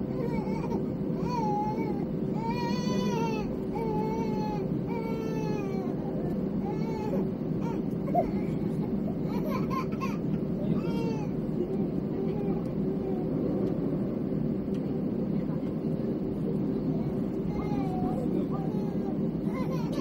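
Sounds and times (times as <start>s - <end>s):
airliner cabin hum: 0.0s - 20.0s
baby crying: 17.5s - 20.0s.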